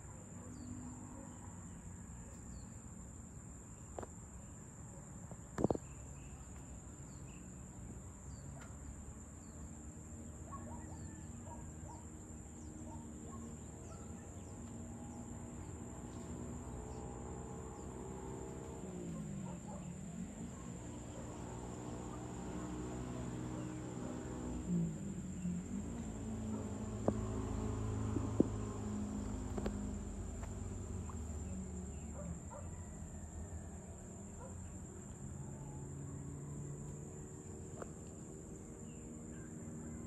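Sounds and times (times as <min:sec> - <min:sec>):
crickets droning: 0:00.0 - 0:40.0
faint low distant hum: 0:00.0 - 0:40.0.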